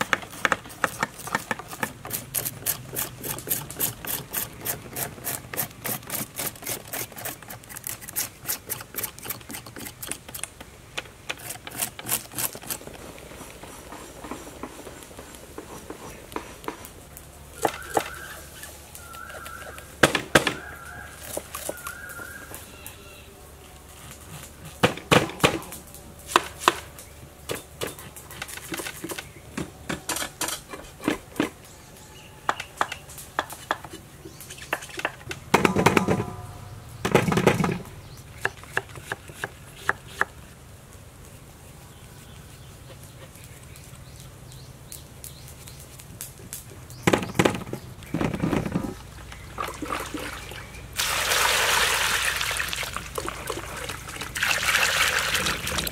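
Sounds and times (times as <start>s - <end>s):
cleaver chopping pumpkin: 17.6s - 18.4s, 38.4s - 40.4s.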